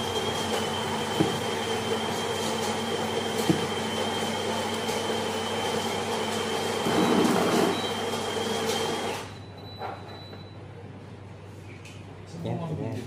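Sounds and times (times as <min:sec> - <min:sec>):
coffee grinder whirring: 0:00.0 - 0:09.3.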